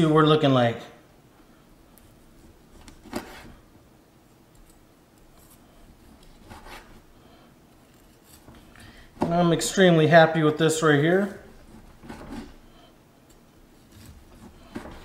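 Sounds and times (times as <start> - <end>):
knife cutting on wooden board: 2.7 - 3.6, 5.4 - 7.0, 11.5 - 12.7, 13.8 - 15.0.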